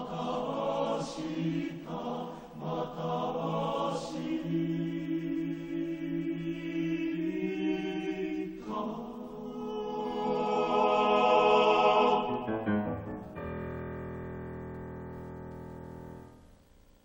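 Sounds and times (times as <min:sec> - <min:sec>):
male choir singing: 0:00.0 - 0:12.8.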